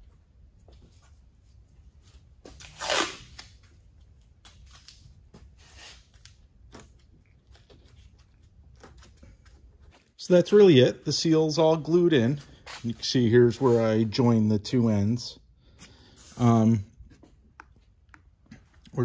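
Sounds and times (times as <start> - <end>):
tape tearing off roll: 2.4 - 3.7.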